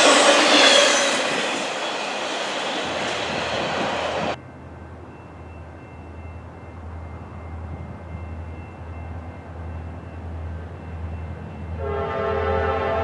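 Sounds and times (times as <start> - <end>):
locomotive horn blowing: 11.8 - 13.0.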